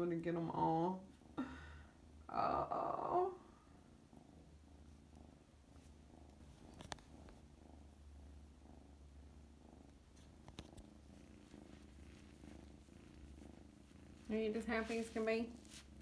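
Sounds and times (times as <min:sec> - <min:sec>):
kitten purring: 0:00.0 - 0:16.0.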